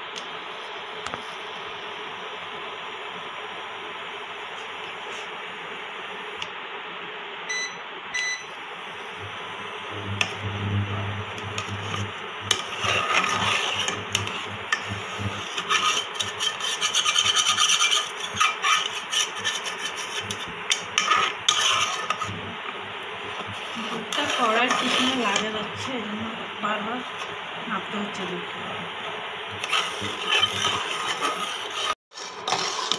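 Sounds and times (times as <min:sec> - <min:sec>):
steady hiss: 0:08.5 - 0:32.9
ladle scraping saucepan: 0:09.1 - 0:25.9, 0:29.0 - 0:32.9.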